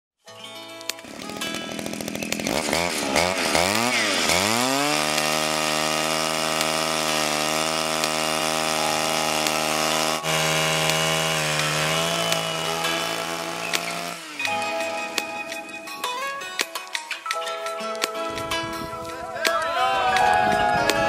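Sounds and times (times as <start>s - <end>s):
small two-stroke engine revving: 1.0s - 15.2s.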